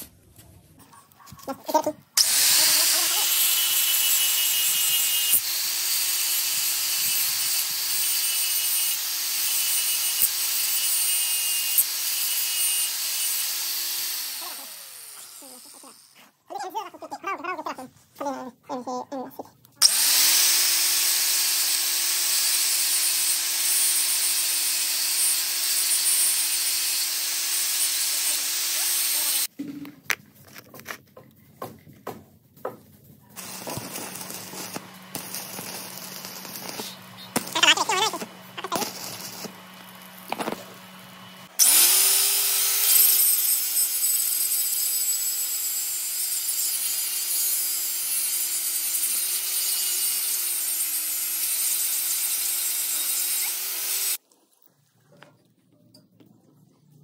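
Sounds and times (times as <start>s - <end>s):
angle grinder grinding steel: 2.2s - 16.2s, 19.8s - 29.5s, 33.4s - 54.2s
arc welding crackle: 33.4s - 43.4s.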